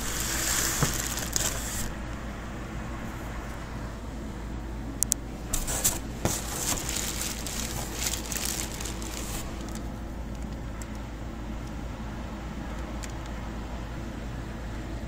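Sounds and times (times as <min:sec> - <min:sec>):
crackling rustling handling noise: 0:00.0 - 0:02.2, 0:05.0 - 0:11.0
low background hum: 0:00.0 - 0:15.0.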